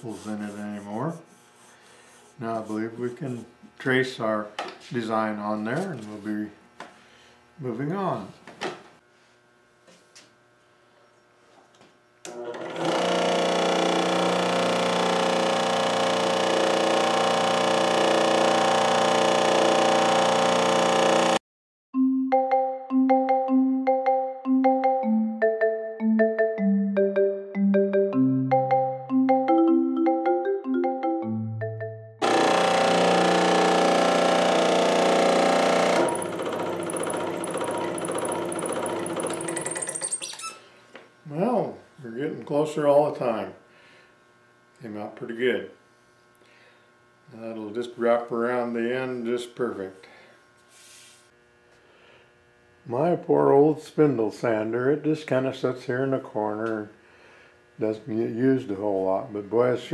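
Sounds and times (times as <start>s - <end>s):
scroll saw cutting wood: 12.3s - 21.4s, 32.2s - 40.3s.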